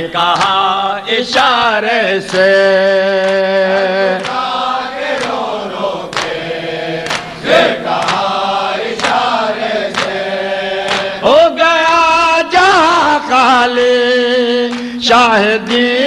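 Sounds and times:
men chanting: 0.0 - 16.0
hands slapping chests: 4.2 - 11.2.

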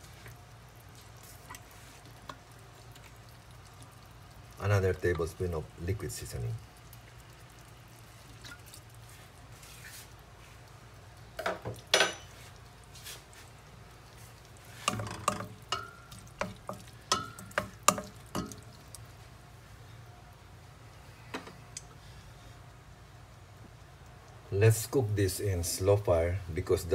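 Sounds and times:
low steady hum: 0.0 - 26.9
utensil stirring in metal pot: 12.1 - 19.0.

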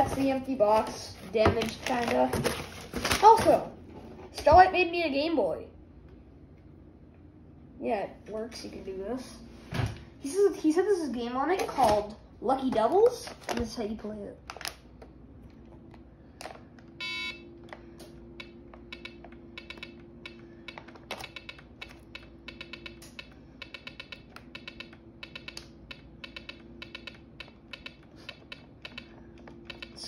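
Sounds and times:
steady low hum: 0.0 - 30.0
electronic beeps: 17.0 - 17.4.

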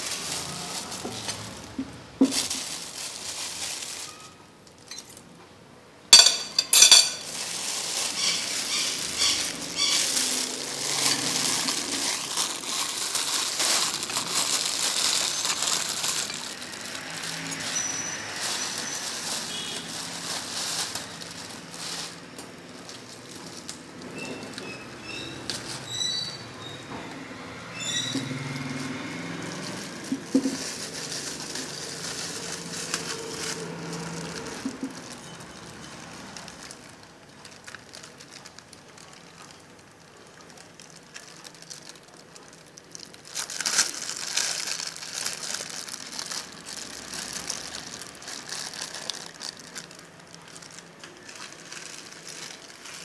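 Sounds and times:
crackling hiss of frying: 0.0 - 4.6, 6.2 - 53.0
dishes and utensils clattering: 6.2 - 9.6.

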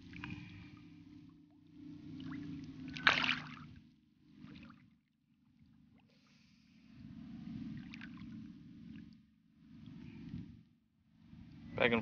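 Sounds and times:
shallow water swishing: 0.0 - 10.5
small water splashes: 2.0 - 3.8, 7.8 - 9.1.

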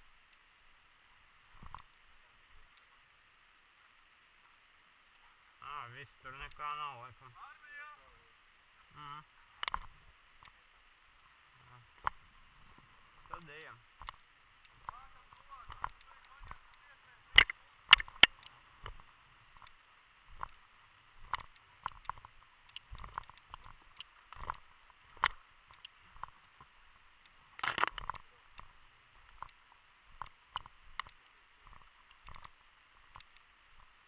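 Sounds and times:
footsteps through dry grass: 12.1 - 33.4.

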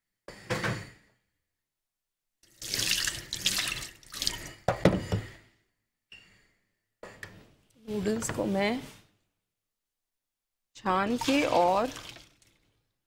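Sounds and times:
water pouring into a strainer: 2.4 - 4.6, 10.9 - 12.6.

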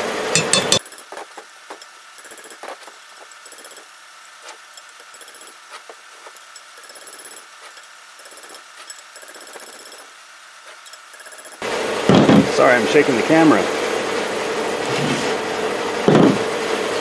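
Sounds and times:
hammer striking chisel: 0.4 - 1.1.

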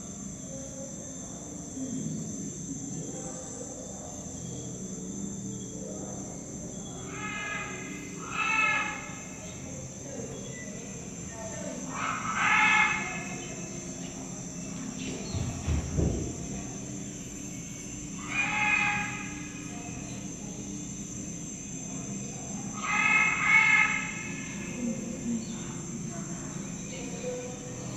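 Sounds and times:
high buzzing of insects: 0.0 - 27.9
loud animal calls: 5.7 - 27.9.

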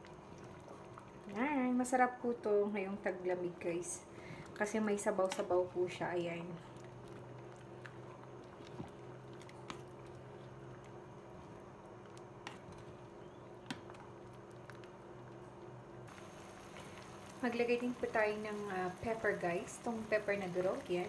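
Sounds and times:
faint steady hum: 0.0 - 21.0
spatula stirring soup in pot: 6.7 - 14.9.

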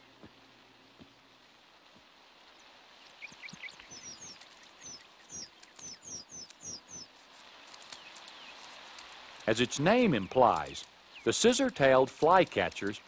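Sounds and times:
faint outdoor hiss: 0.0 - 13.0
birds chirping high: 2.5 - 8.8, 9.5 - 13.0.

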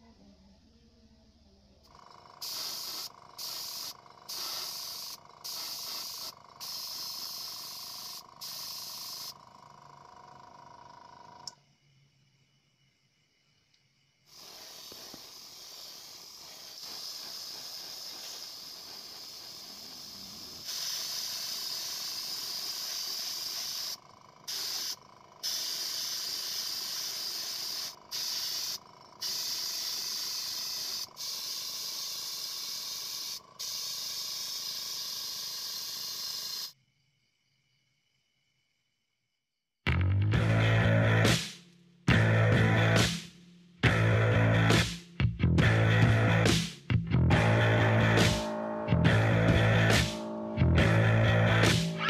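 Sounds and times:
paint spray gun hissing: 2.0 - 9.4, 14.3 - 36.8.

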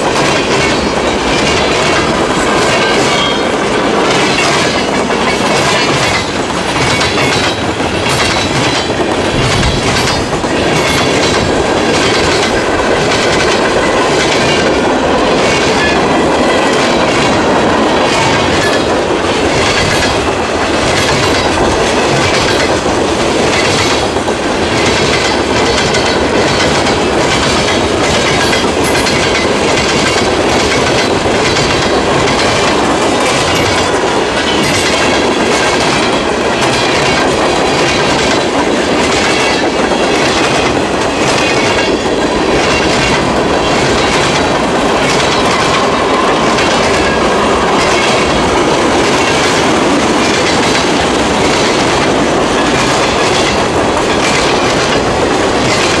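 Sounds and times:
freight train wheels rumbling: 0.0 - 56.0
wheels clickety-clack on rail joints: 0.0 - 56.0.

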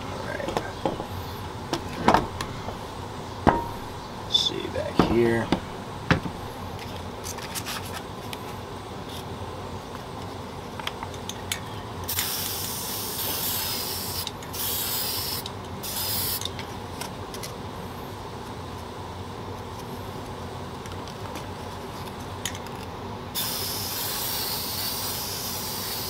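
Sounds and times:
light clicks and handling knocks: 4.9 - 7.0
spray paint can hissing: 12.1 - 16.5, 23.4 - 26.0.

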